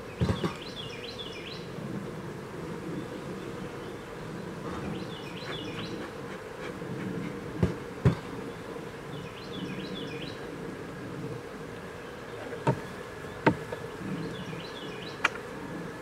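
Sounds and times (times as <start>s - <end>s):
bird singing: 0.0s - 1.7s, 3.0s - 6.2s, 8.0s - 10.5s, 12.0s - 15.5s
bees buzzing: 0.0s - 16.0s.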